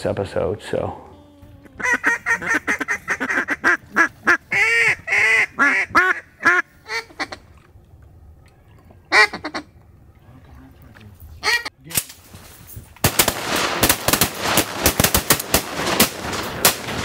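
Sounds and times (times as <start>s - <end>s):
duck quacking: 1.7s - 7.4s.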